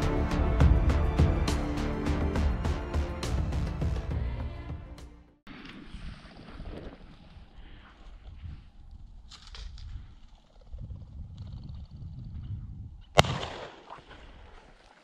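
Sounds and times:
shotgun shot: 0:13.2 - 0:14.4.

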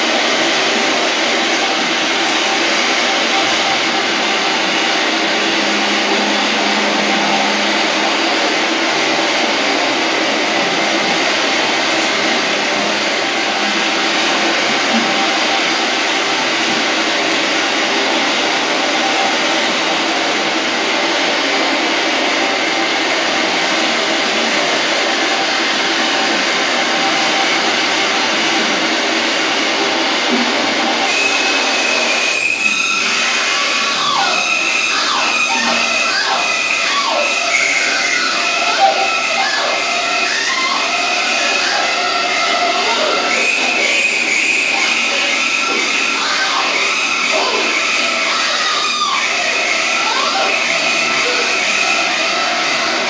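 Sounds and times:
rushing hiss over loudspeakers: 0:00.0 - 0:38.8.

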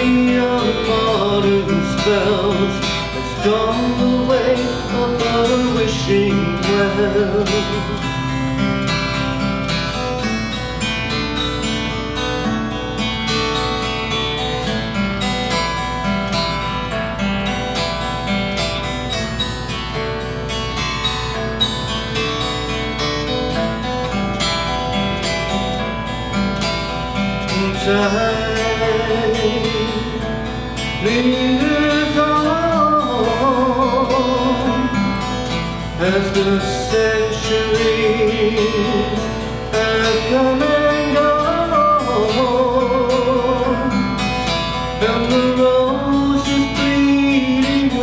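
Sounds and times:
man singing: 0:00.0 - 0:08.4, 0:27.4 - 0:48.0
acoustic guitar: 0:00.0 - 0:48.0.

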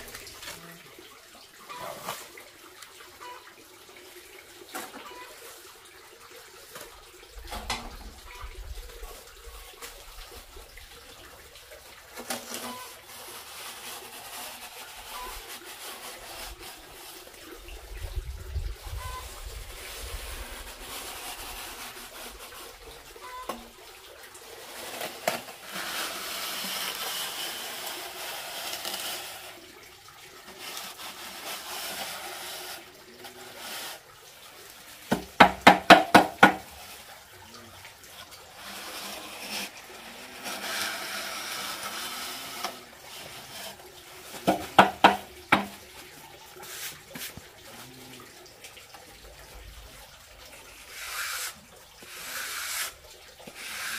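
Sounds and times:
trowel scraping wet cement: 0:12.2 - 0:17.5, 0:18.9 - 0:23.7, 0:24.6 - 0:29.6, 0:30.4 - 0:34.0, 0:38.5 - 0:45.8, 0:50.8 - 0:53.9.

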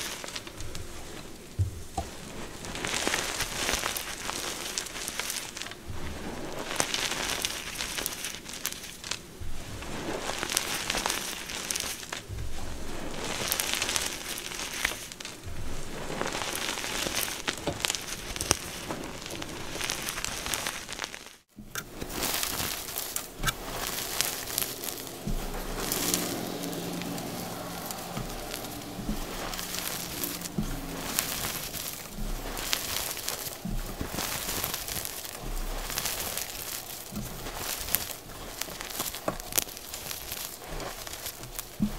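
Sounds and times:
chalk crunching and cracking: 0:00.0 - 0:41.9.

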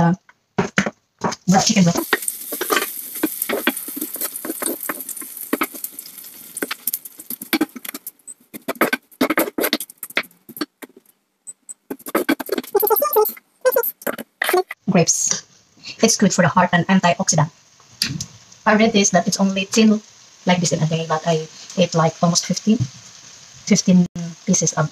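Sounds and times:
wooden spoon scraping pan: 0:00.6 - 0:11.0, 0:11.9 - 0:12.9
chicken sizzling in frying pan: 0:01.5 - 0:10.6, 0:17.8 - 0:24.9.

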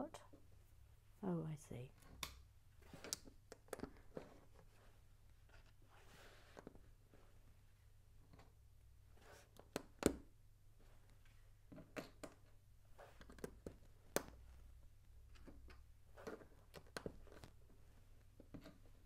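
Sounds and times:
soft rustling: 0:01.9 - 0:09.6.

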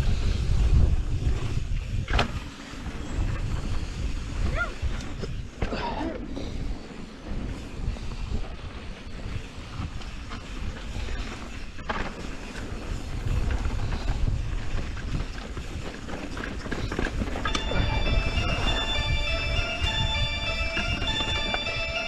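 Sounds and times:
bike tyres rolling on dirt: 0:00.0 - 0:05.6, 0:06.3 - 0:19.3
bike rattles and clicks: 0:00.0 - 0:22.0
wind on microphone: 0:00.0 - 0:22.0
music: 0:17.5 - 0:22.0.

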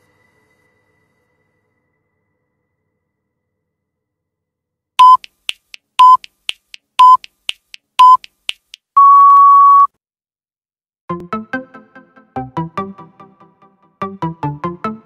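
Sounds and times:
long higher timer beep: 0:05.0 - 0:05.3, 0:06.0 - 0:06.3, 0:07.0 - 0:07.3, 0:09.0 - 0:09.9
timer short beeps: 0:05.0 - 0:05.3, 0:06.0 - 0:06.3, 0:07.0 - 0:07.3, 0:08.0 - 0:08.3, 0:09.0 - 0:09.9
faint timer ticks: 0:05.0 - 0:09.1.

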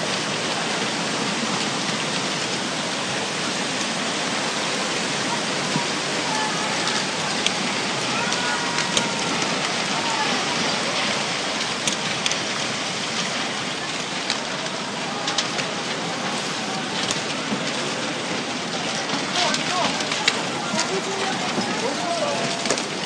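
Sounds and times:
floodwater rushing: 0:00.0 - 0:23.0.

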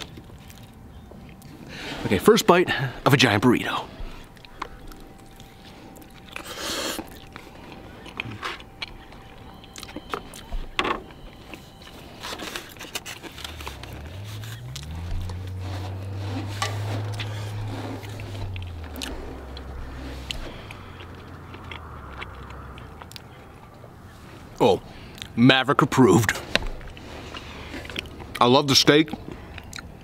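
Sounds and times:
chewing: 0:00.0 - 0:01.7, 0:04.0 - 0:25.4, 0:26.3 - 0:30.0
low engine hum: 0:07.0 - 0:25.1
plastic fork scraping styrofoam box: 0:12.0 - 0:19.2.

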